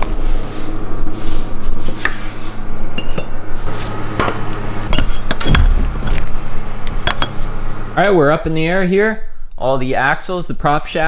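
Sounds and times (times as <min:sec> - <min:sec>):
steady low hum: 0:00.0 - 0:11.0
heavy low thud: 0:05.4 - 0:06.5.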